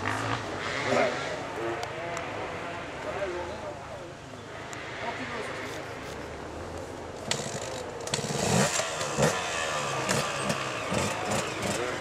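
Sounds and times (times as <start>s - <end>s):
dirt bike engines revving: 0.0s - 3.8s, 7.2s - 12.0s.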